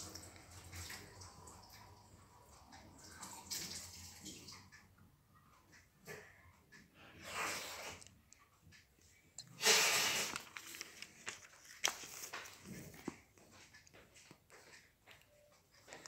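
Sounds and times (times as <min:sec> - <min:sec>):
book pages turning: 0:09.7 - 0:14.5.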